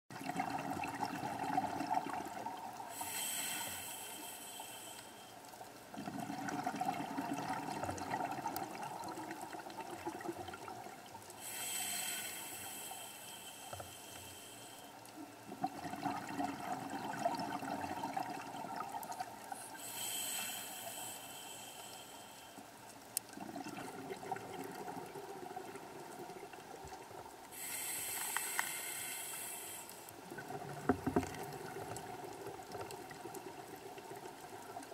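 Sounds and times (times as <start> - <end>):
exhaled bubbles rushing: 0.1 - 2.8, 5.9 - 11.0, 15.6 - 19.4, 23.4 - 26.4
diver inhaling through regulator: 2.9 - 5.4, 11.4 - 14.9, 19.6 - 22.6, 27.5 - 30.1.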